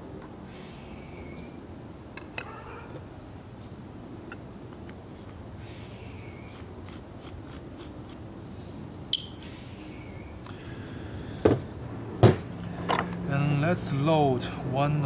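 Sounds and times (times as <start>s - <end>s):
dull knocks: 12.2s - 12.4s.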